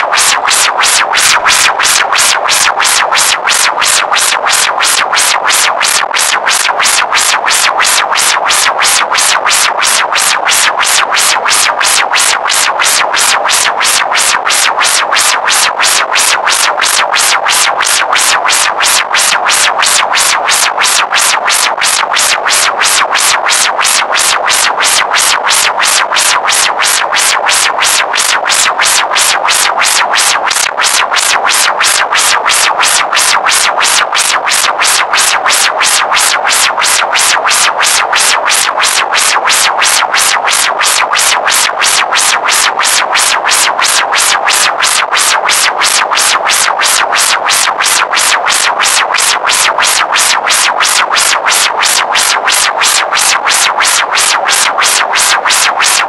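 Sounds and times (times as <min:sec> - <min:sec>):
synthesizer music with fast pulse: 0:21.2 - 0:24.9, 0:25.8 - 0:31.9, 0:32.5 - 0:55.3.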